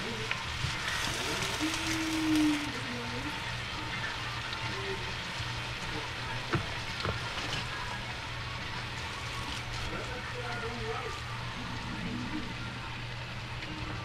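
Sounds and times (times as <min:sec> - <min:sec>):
crackling sizzle: 0:00.0 - 0:14.0.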